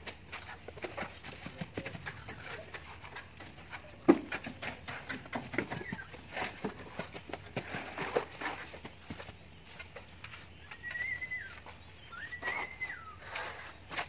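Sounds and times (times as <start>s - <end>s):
trowels scraping render on wall: 12.4s - 14.0s.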